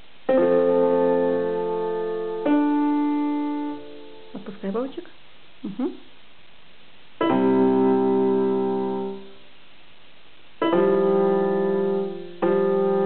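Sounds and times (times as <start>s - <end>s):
electronic keyboard notes: 0.3s - 4.5s, 7.2s - 9.4s, 10.6s - 13.0s.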